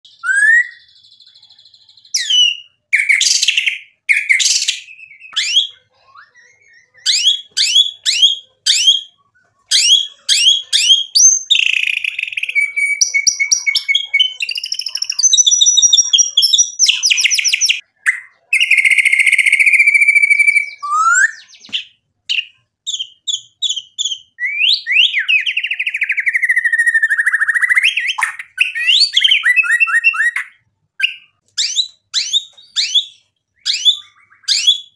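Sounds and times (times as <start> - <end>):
songbird singing trills and whistles: 0.1 - 34.9.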